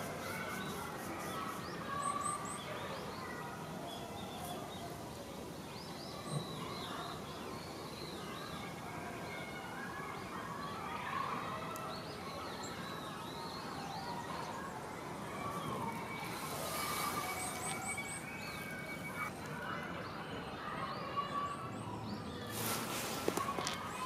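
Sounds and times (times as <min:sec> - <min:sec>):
small birds chirping: 0:00.0 - 0:24.0
short rush of noise: 0:22.5 - 0:23.6.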